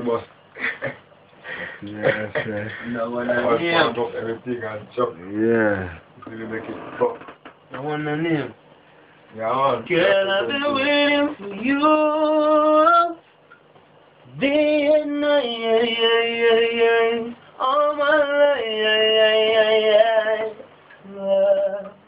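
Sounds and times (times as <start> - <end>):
person singing unaccompanied: 9.5 - 13.2, 14.3 - 22.0.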